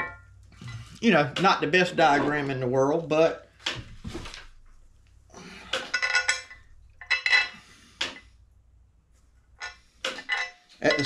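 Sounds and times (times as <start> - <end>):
metal jack parts clanking: 5.7 - 8.2, 9.6 - 11.0.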